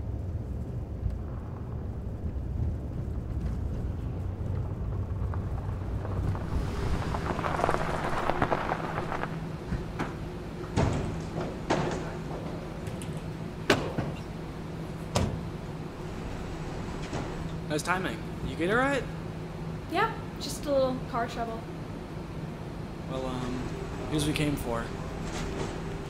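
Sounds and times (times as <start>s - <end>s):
tyres hissing on wet pavement: 5.1s - 10.0s.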